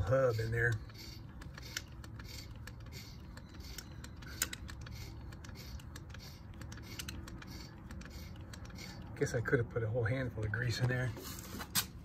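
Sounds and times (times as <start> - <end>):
grease gun clicking strokes: 0.0 - 9.4.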